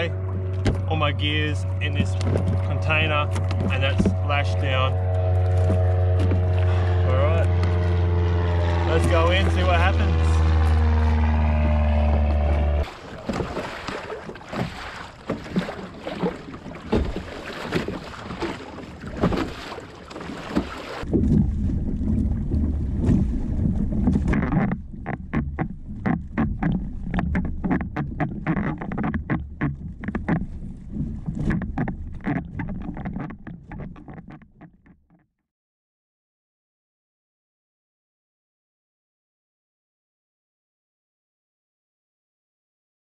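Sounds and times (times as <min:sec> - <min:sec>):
water slapping against hull: 0:00.0 - 0:35.0
wind buffeting microphone: 0:21.0 - 0:26.4.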